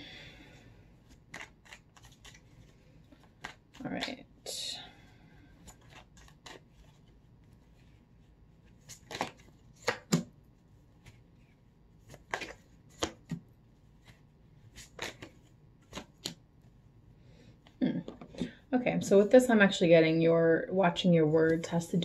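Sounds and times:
cards being shuffled: 1.0 - 4.2, 5.6 - 16.7
card snaps: 9.0 - 10.3.

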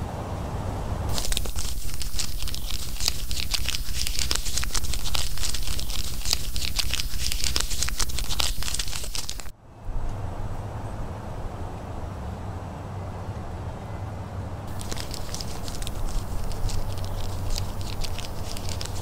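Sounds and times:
paper bag crumpling: 1.1 - 9.5, 14.7 - 19.0.

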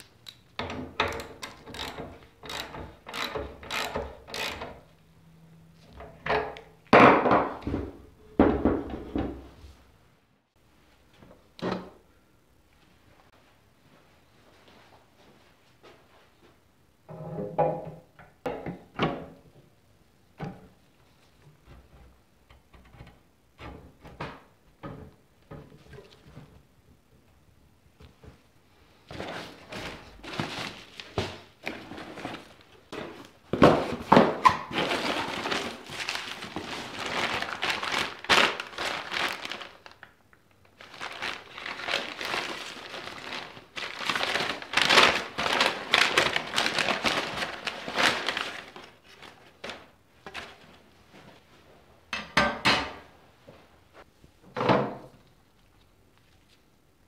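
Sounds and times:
plastic bags and cardboard crinkling: 29.0 - 51.5.

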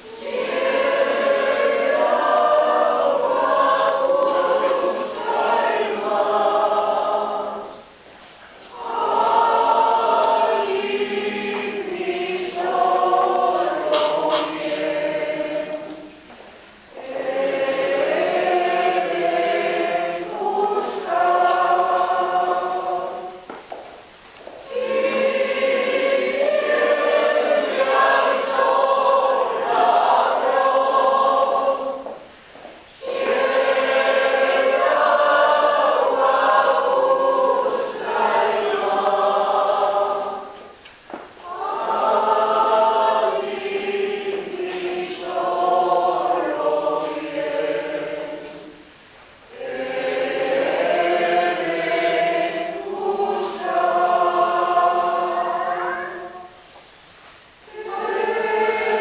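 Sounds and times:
choir singing a hymn unaccompanied: 0.0 - 59.0.

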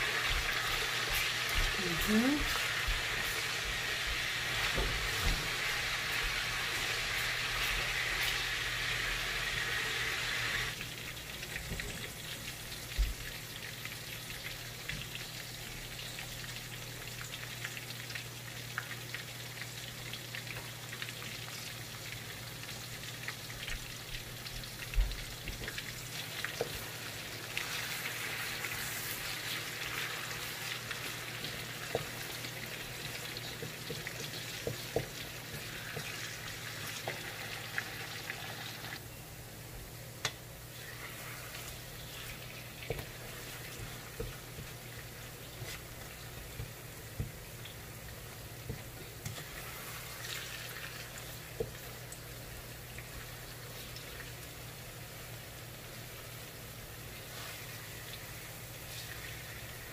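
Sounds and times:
food sizzling in oil: 0.0 - 39.4, 40.6 - 59.9
wooden spatula knocking on wok: 33.6 - 36.1.

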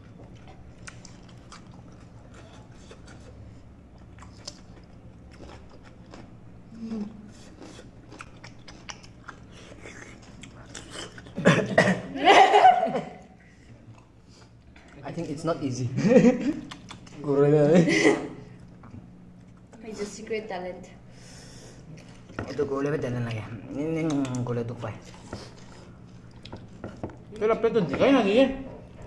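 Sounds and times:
crunching cucumber: 7.4 - 11.4, 23.6 - 27.5.

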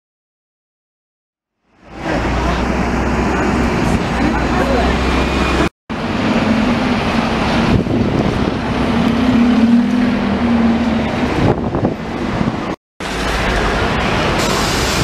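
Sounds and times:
street traffic noise: 1.6 - 15.0
diesel bus engine humming: 1.7 - 15.0.

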